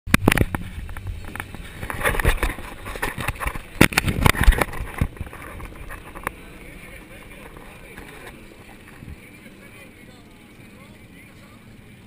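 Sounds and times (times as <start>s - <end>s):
camera knocks and rattles: 0.1s - 6.4s
wind rumble on microphone: 0.1s - 9.4s.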